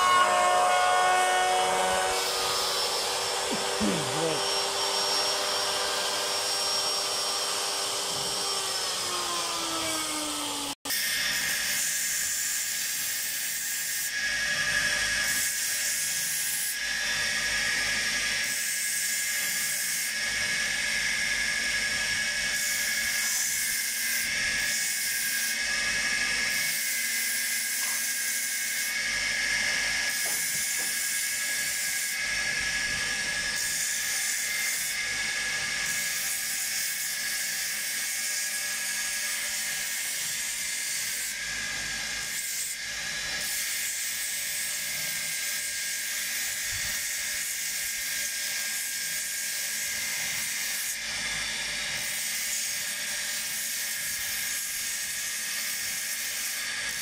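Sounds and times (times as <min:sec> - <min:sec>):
sanding wheel whining: 0:00.0 - 0:57.0
wood being sanded hiss: 0:02.2 - 0:06.9, 0:52.0 - 0:57.0.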